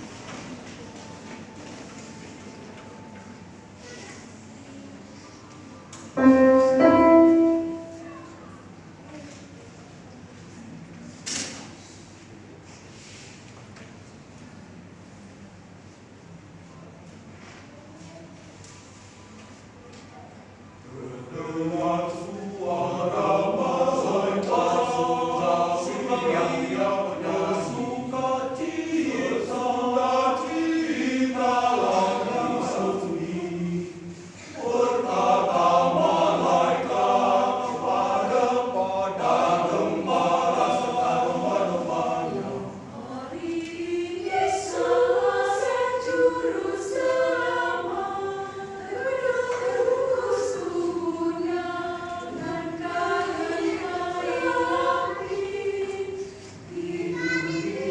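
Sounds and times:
mixed choir singing: 0:06.2 - 0:08.0, 0:20.8 - 0:57.9.

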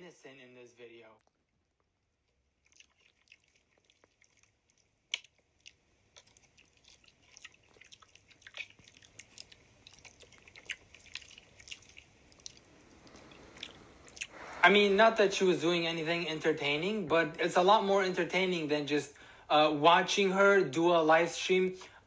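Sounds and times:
wet lip and tongue clicks: 0:01.2 - 0:14.4.

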